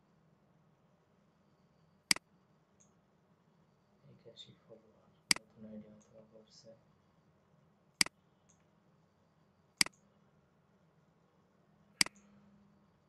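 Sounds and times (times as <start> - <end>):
faint low hum: 0.0 - 13.0
computer mouse clicking: 9.8 - 10.0, 12.0 - 12.4.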